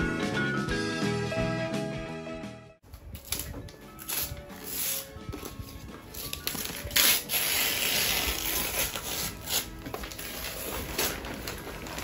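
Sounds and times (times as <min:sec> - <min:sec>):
gift packaging rubbing and scraping: 0:04.0 - 0:12.0.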